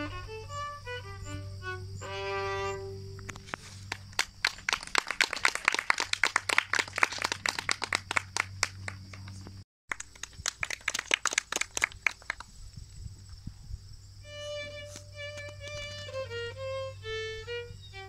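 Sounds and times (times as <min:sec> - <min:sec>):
audience applauding: 0:03.9 - 0:12.5.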